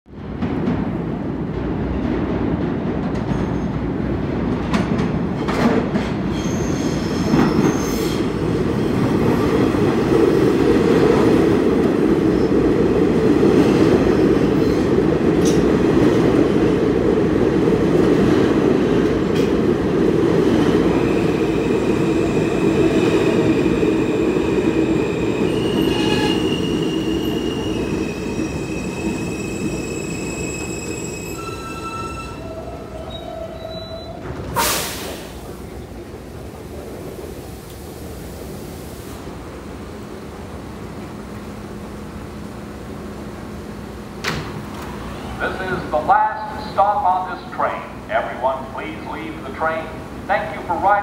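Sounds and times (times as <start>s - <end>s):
subway train rumble: 0.1s - 51.0s
high-pitched brake squealing: 6.3s - 8.3s, 25.4s - 34.9s.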